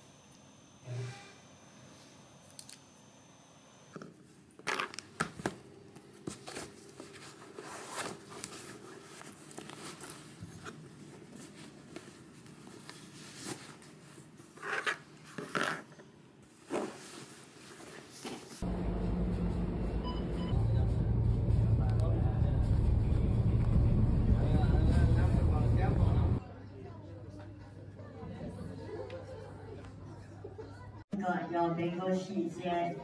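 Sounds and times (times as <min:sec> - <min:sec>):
fabric rustling and scraping: 0:06.1 - 0:18.6.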